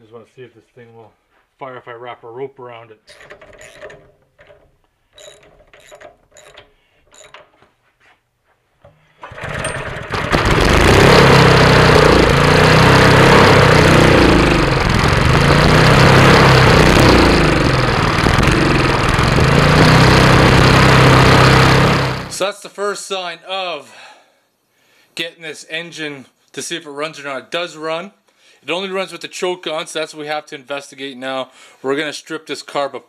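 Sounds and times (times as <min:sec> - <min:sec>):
small engine running loudly: 0:09.2 - 0:22.4.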